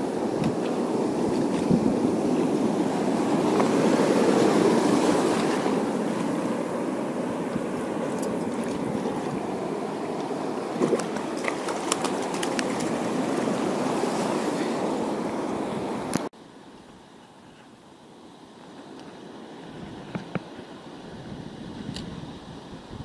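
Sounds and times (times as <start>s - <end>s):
sea surf washing: 0.0s - 16.7s, 17.8s - 23.0s
light splashes and clicks: 10.2s - 13.0s.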